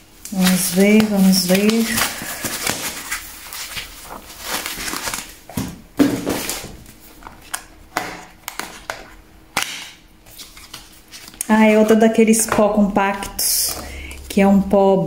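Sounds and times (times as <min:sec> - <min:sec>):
foam wrap rustling: 0:00.0 - 0:09.3, 0:10.2 - 0:12.0.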